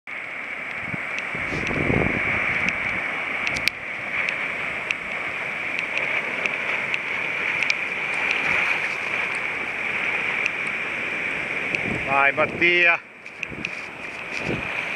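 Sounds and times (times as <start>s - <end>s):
small waves breaking: 0.2s - 14.9s
wind gust on microphone: 0.7s - 5.4s, 6.5s - 14.9s
small clicks: 5.7s - 9.0s.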